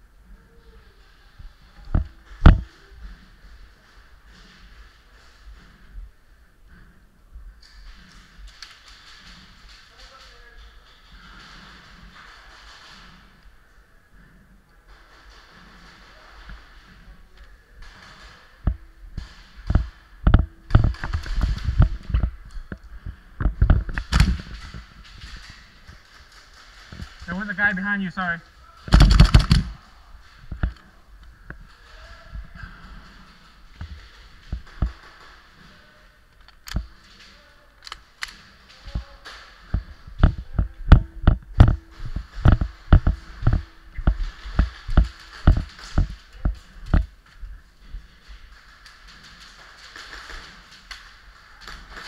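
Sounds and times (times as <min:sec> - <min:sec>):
camera rattling and knocking: 0:01.8 - 0:02.7, 0:17.8 - 0:27.7, 0:28.9 - 0:29.8, 0:30.4 - 0:30.9, 0:32.8 - 0:35.6, 0:39.7 - 0:52.0
footfalls: 0:07.7 - 0:52.0.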